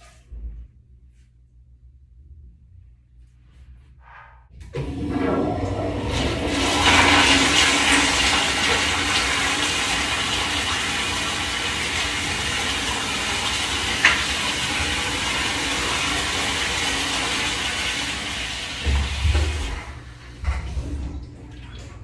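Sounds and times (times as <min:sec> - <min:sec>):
toilet flushing: 0:04.5 - 0:22.0.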